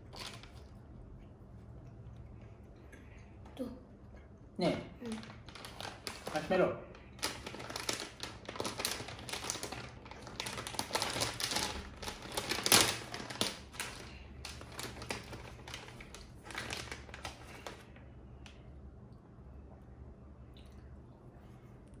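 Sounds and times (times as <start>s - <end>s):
plastic packaging crinkling: 0.0s - 0.7s, 5.0s - 17.9s.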